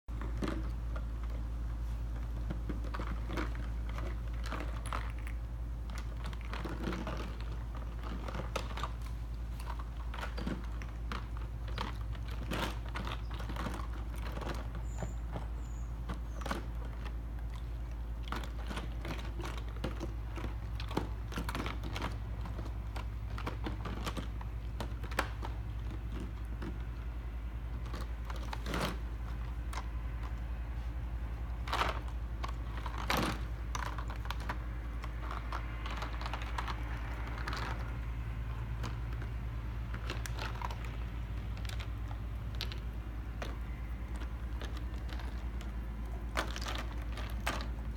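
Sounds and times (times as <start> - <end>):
dogs crunching ice: 0.1 - 47.9.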